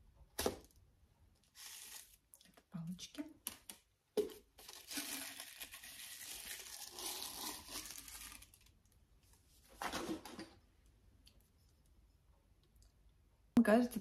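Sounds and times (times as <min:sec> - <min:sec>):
packaging crinkling and rustling: 0:01.4 - 0:02.6, 0:04.2 - 0:08.9.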